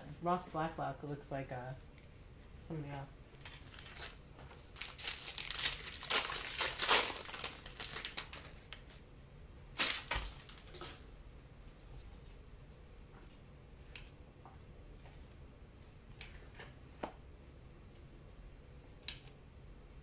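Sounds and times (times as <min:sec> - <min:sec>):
foil wrapper crinkling and tearing: 0:03.5 - 0:09.0, 0:09.7 - 0:10.8.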